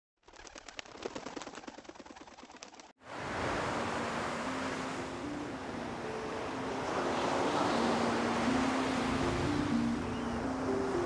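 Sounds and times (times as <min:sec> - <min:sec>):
rapid irregular clicking and fluttering: 0:00.2 - 0:03.0
surf breaking on a beach: 0:03.1 - 0:11.0.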